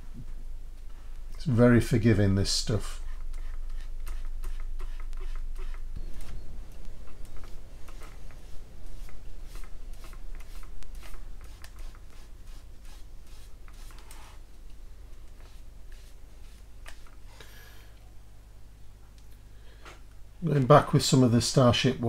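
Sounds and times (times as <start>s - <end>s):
towel rubbing on plastic: 2.9s - 14.5s.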